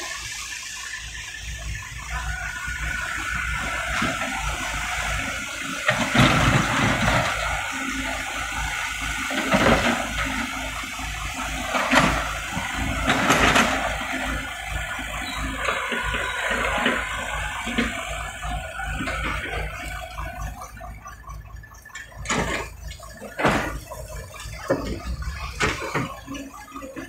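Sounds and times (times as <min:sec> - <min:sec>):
excavator diesel engine: 0:00.0 - 0:27.0.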